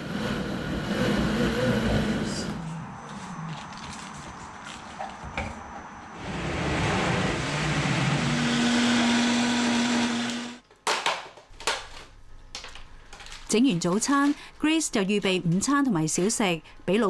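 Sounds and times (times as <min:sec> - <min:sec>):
blender motor running: 0:00.0 - 0:02.6, 0:06.2 - 0:10.6.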